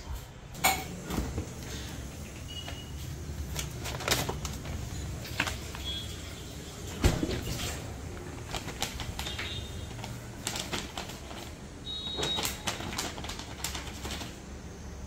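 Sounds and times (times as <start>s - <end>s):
plastic pouch crinkling: 3.4s - 6.4s, 7.9s - 14.4s.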